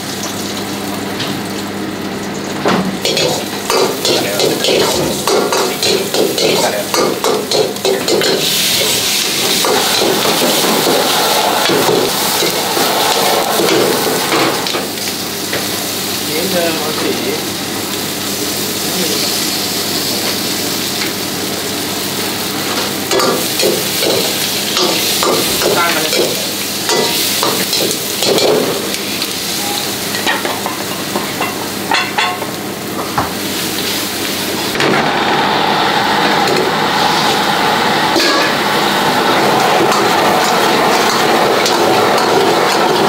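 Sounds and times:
food sizzling in a wok: 0:00.0 - 0:43.0
metal ladle scraping wok: 0:08.1 - 0:15.1.

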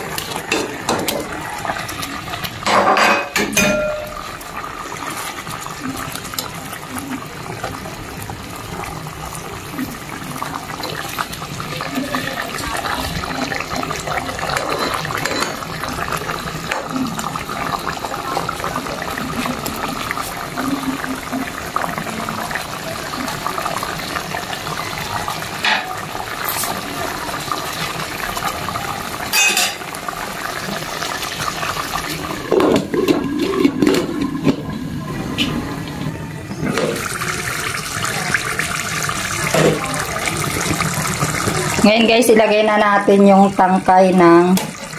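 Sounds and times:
cream bubbling in a pot: 0:00.0 - 0:02.8, 0:04.2 - 0:44.9
metal spoon clinking against pot: 0:02.7 - 0:04.3
glass lid clattering on pot: 0:14.5 - 0:15.6.

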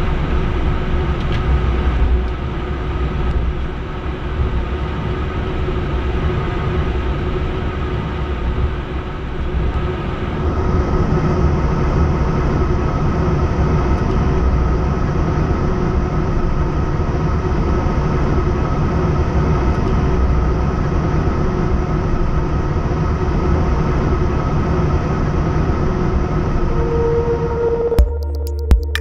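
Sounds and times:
steady whine: 0:00.0 - 0:19.5, 0:20.1 - 0:29.0
low rumble: 0:25.7 - 0:29.0.

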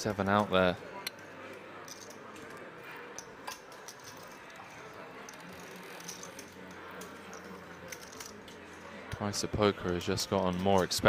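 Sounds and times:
poker chips clicking: 0:01.1 - 0:08.6.

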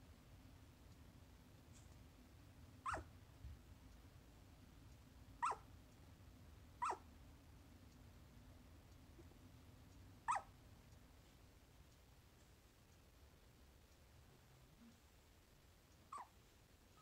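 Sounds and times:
puppy yipping in its sleep: 0:02.8 - 0:03.1, 0:05.4 - 0:05.7, 0:06.8 - 0:07.0, 0:10.2 - 0:10.5, 0:16.1 - 0:17.0.

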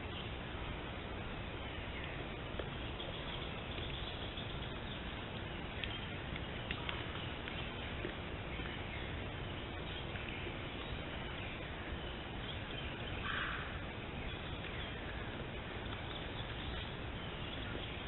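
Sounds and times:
microphone hiss: 0:00.0 - 0:18.0
faint bird calls: 0:01.6 - 0:18.0.

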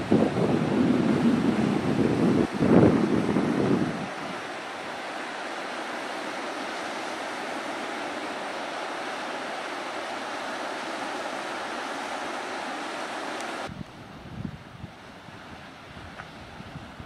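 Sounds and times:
small waves breaking on sandy beach: 0:00.0 - 0:17.0.

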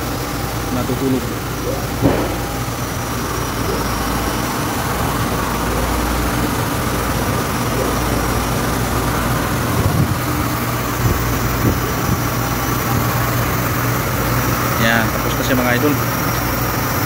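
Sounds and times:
printer mechanical hum: 0:00.0 - 0:17.0
brief knocks: 0:02.0 - 0:02.5.

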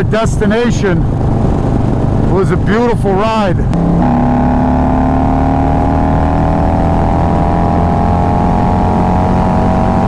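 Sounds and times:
wind rush: 0:00.0 - 0:04.2
motorcycle engine cruising: 0:03.4 - 0:10.0.

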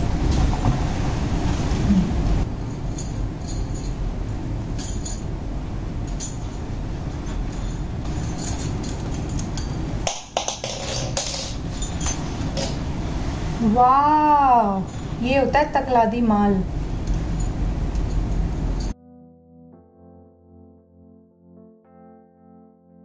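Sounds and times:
bangles clinking: 0:02.7 - 0:04.0, 0:07.3 - 0:12.8.

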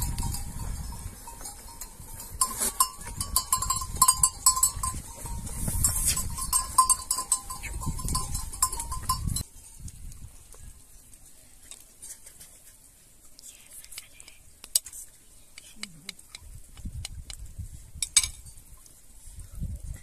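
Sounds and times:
small bells clinking: 0:00.0 - 0:09.5
sheep moving and grazing: 0:00.0 - 0:20.0.

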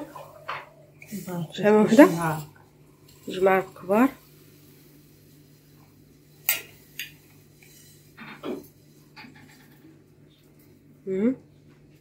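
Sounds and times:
metal spoon clinking on pot: 0:06.4 - 0:07.1.

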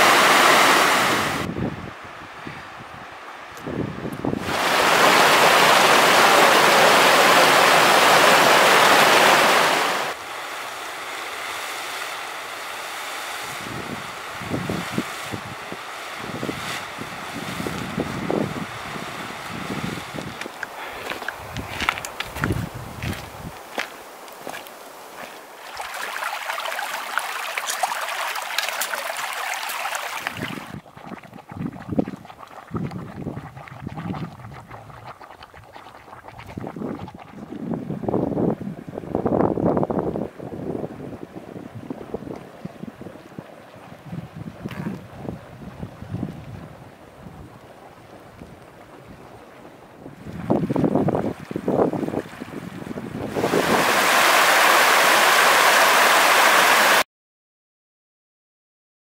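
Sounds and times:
flowing water rushing: 0:00.0 - 0:02.4, 0:03.0 - 0:57.0
low gurgling of hot spring: 0:00.0 - 0:57.0
splashes of wading: 0:04.4 - 0:37.6.

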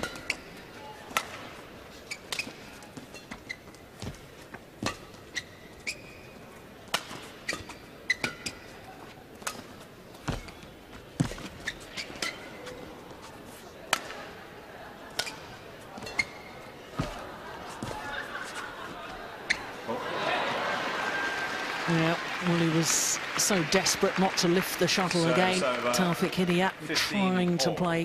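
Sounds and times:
shoes squeaking on court: 0:00.0 - 0:14.2, 0:15.0 - 0:19.9
rackets hitting shuttlecock: 0:01.1 - 0:01.5, 0:06.9 - 0:07.6.

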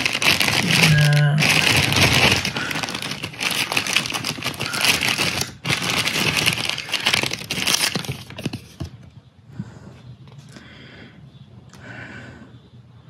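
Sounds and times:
plastic bags crinkling: 0:00.0 - 0:08.9.

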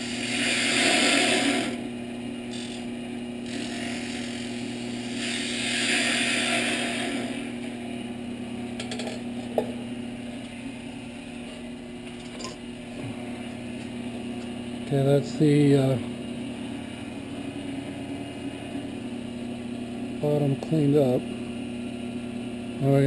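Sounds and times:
gouge cutting wood shavings hiss: 0:00.0 - 0:01.8, 0:03.4 - 0:07.4
wood lathe humming: 0:00.0 - 0:08.5.

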